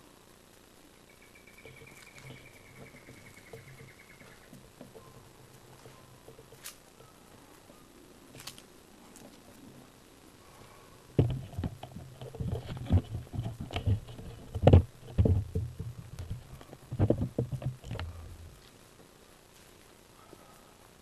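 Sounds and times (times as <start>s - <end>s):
footsteps on rocks and mulch: 8.3s - 9.5s, 19.5s - 20.0s.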